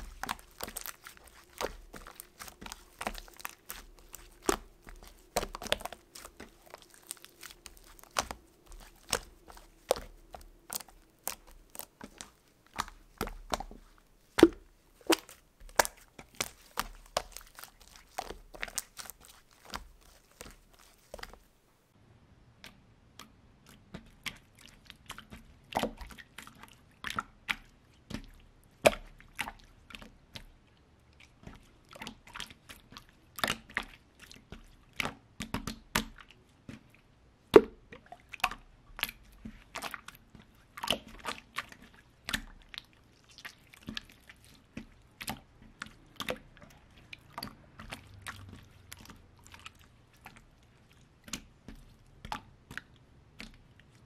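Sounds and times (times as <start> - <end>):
air bubbles popping: 0.0 - 21.3
slime squelching: 0.0 - 21.9, 22.6 - 54.0.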